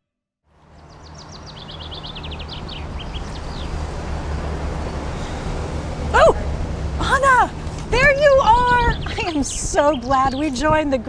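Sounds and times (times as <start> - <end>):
low traffic rumble: 0.5 - 11.0
small bird chirping: 0.8 - 3.8.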